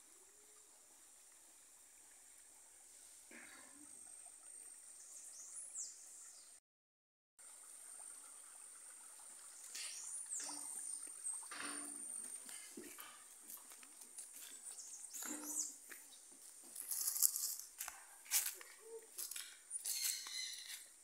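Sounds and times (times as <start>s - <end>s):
water trickling into a tank: 0.0s - 6.6s, 7.4s - 21.0s
high insect tone: 19.8s - 20.9s.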